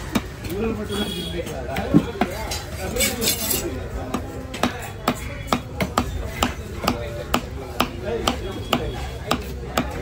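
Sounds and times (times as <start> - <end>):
knife chopping on wooden block: 4.0 - 10.0.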